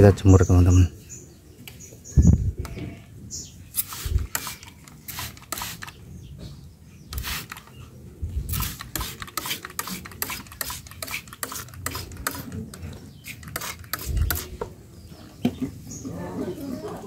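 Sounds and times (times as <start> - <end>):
spray bottle misting hiss: 3.8 - 6.0, 7.2 - 7.7, 8.5 - 12.5, 13.2 - 14.5.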